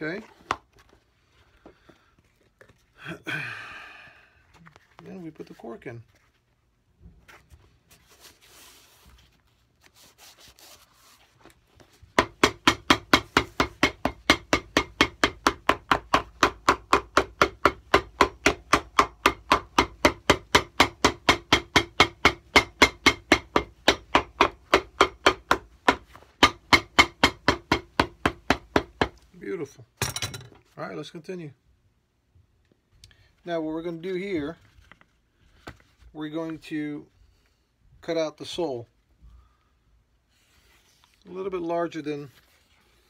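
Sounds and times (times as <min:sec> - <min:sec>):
hammer tapping on shoe sole: 0:12.2 - 0:29.2.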